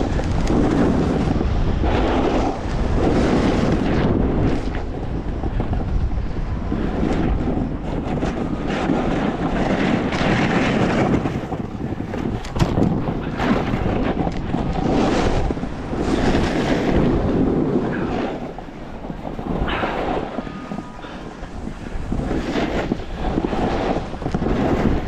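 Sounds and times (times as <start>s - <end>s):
snowboard scraping over snow: 0.0s - 25.0s
wind on microphone: 0.0s - 25.0s.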